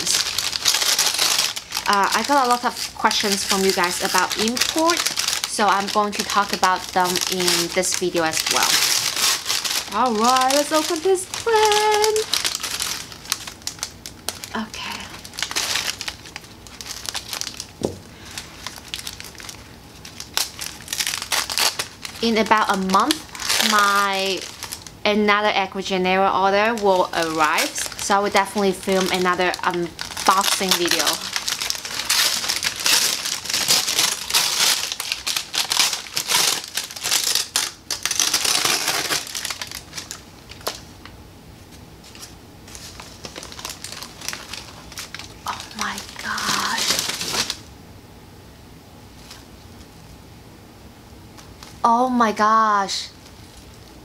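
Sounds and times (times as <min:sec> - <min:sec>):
packing paper crinkling: 0:00.0 - 0:25.0, 0:25.6 - 0:47.7, 0:49.2 - 0:49.5, 0:51.3 - 0:51.8, 0:53.2 - 0:54.0
short dull thump: 0:17.8 - 0:18.1.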